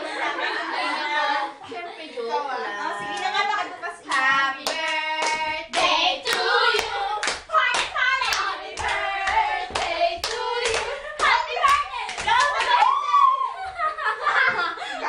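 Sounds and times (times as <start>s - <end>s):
people singing together: 2.7s - 12.5s
hand claps: 4.1s - 12.9s.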